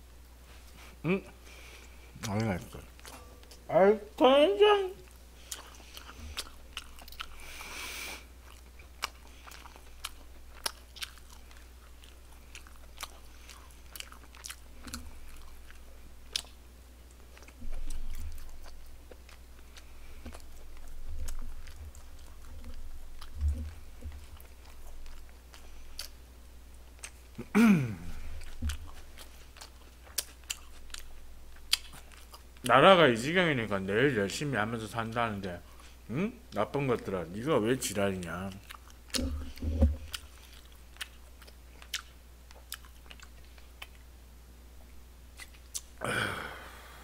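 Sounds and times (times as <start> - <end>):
close chewing with mouth smacks: 5.0 - 27.5, 28.1 - 32.7, 38.0 - 44.1, 45.3 - 46.0.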